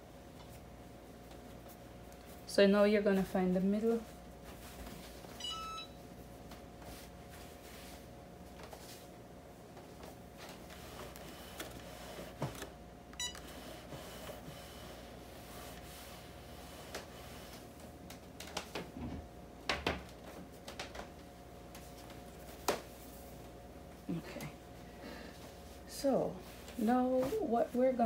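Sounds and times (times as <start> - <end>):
short electronic beep: 5.4 - 6.0.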